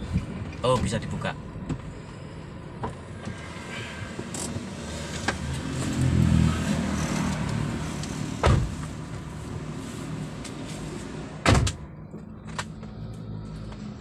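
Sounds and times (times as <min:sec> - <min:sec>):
sharp loud thump: 0:08.4 - 0:08.7.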